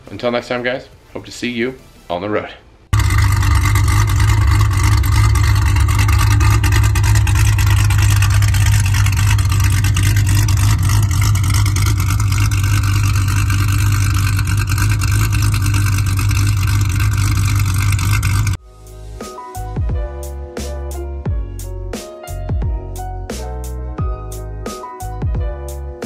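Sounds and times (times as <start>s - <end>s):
car engine idling: 2.9s - 18.6s.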